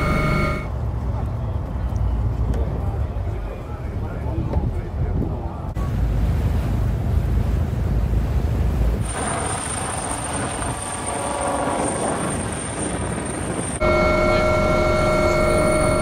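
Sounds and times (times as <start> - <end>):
aircraft engine whine: 0.0 - 0.8, 8.8 - 16.0
low wind: 0.0 - 16.0
sea rumble: 1.0 - 16.0
helicopter flying overhead: 9.0 - 16.0.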